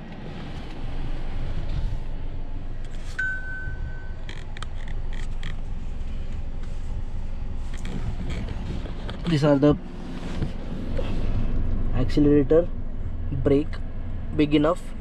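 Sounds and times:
car cabin rumble: 0.0 - 15.0
electronic beep: 3.2 - 4.2.

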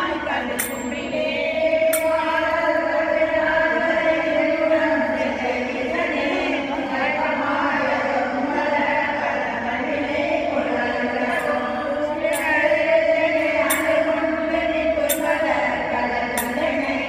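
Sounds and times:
group chanting a hymn: 0.0 - 17.0
short metallic clink: 0.6 - 1.0.

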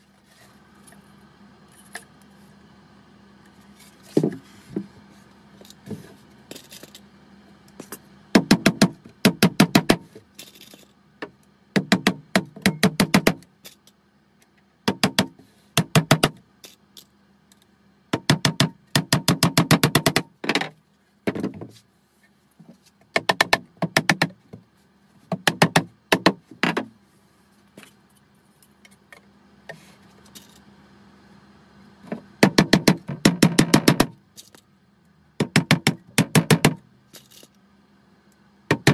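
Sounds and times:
hammer tapping nails: 11.8 - 13.4, 18.2 - 20.6, 23.1 - 24.4, 25.3 - 26.9, 32.4 - 34.1, 35.4 - 36.8.

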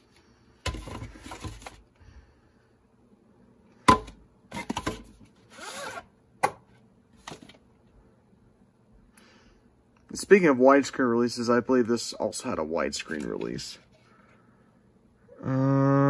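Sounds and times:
cassette scraping out of sleeve: 5.5 - 6.1.

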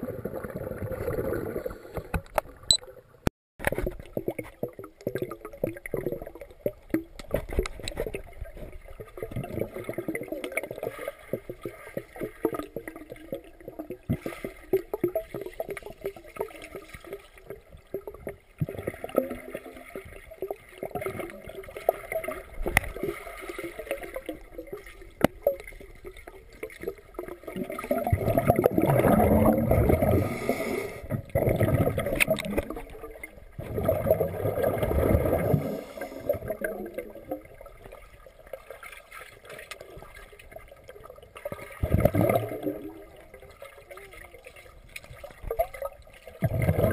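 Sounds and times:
underwater clicks: 2.0 - 2.9, 3.6 - 8.7, 21.9 - 23.1, 25.1 - 25.8, 31.4 - 33.0, 39.4 - 40.1
muffled underwater bubbling: 3.6 - 46.9.

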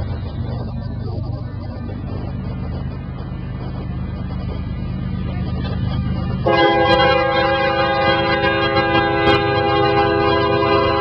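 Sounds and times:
diesel locomotive engine rumbling: 0.0 - 11.0
locomotive air horn chord: 6.4 - 11.0.

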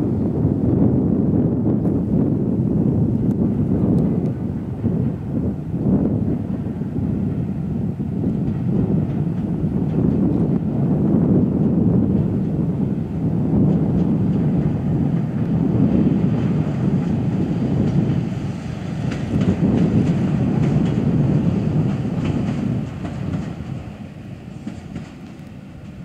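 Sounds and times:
train rumbling past: 0.0 - 26.0
train wheel clicks: 16.9 - 26.0.

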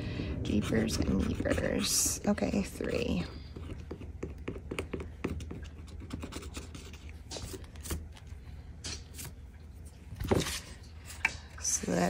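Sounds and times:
pen scratching on paper: 0.4 - 2.2, 3.5 - 7.1.

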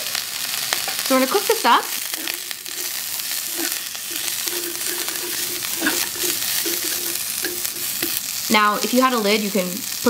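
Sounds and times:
vegetables sizzling in a frying pan: 0.0 - 10.0
chopsticks clicking against pan: 2.2 - 8.2.

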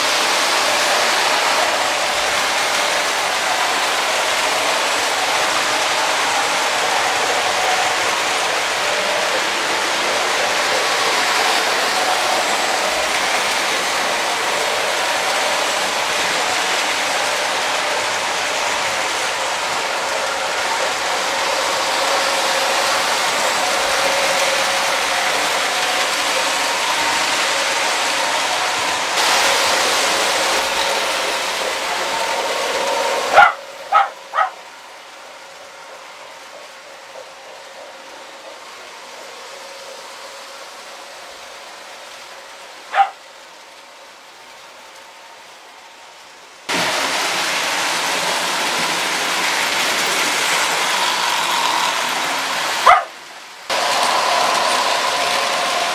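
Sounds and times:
toy trains rolling clatter: 0.0 - 55.9
loud pitched calls: 33.2 - 34.6.

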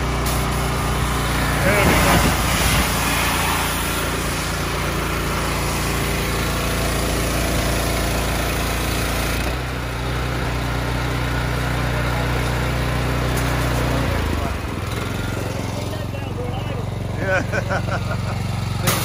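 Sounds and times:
spray hissing against metal: 0.0 - 8.2
pressure washer engine running: 0.0 - 19.0.

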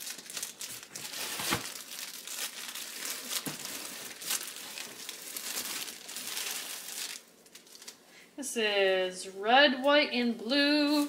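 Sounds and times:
plastic bag crinkling: 0.0 - 8.0.

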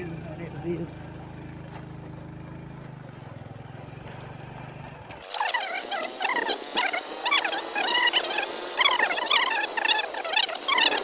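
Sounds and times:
motorbike engine humming: 0.0 - 11.0
high-pitched chirps and squeaks: 5.2 - 11.0.

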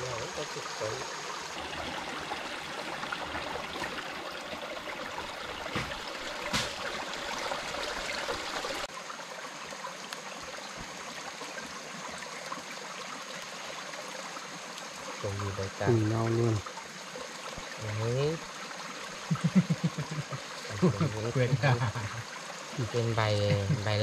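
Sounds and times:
flowing water: 0.0 - 24.0.

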